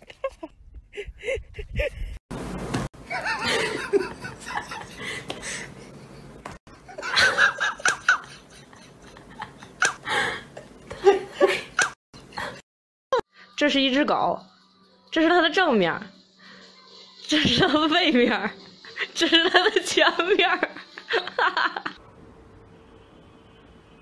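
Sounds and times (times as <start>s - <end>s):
person laughing: 0.0s - 2.2s, 3.1s - 5.6s, 6.9s - 12.6s, 19.0s - 22.0s.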